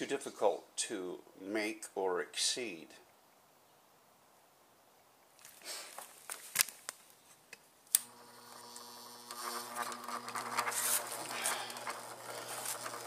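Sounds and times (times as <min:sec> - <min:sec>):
bench grinder motor humming: 0:08.0 - 0:13.0.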